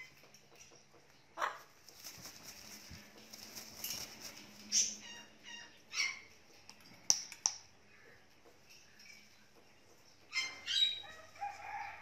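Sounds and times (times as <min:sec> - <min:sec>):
parrot wings flapping: 0:01.8 - 0:04.4
parrot calls and squawks: 0:04.7 - 0:06.4, 0:10.3 - 0:11.1.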